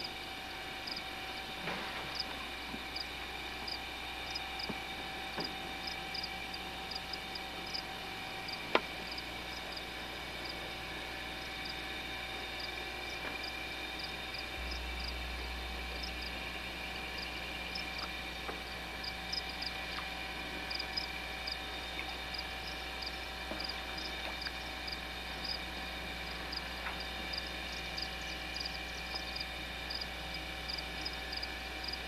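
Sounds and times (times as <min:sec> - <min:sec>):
frogs and insects calling: 0:00.0 - 0:32.0.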